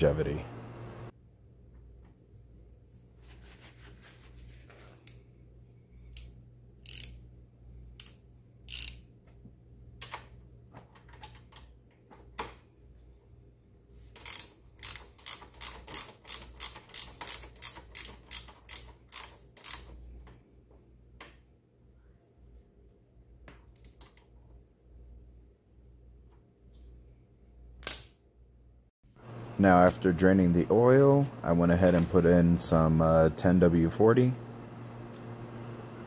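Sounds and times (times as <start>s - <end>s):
hand ratchet clicking: 6.1s - 7.2s, 8.0s - 9.1s, 14.2s - 20.3s.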